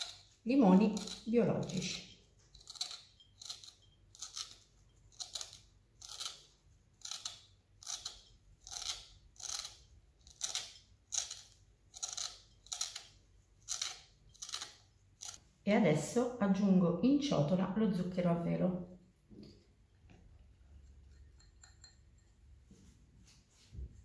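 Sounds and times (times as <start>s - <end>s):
zester scraping lemon peel: 0.0s - 15.4s.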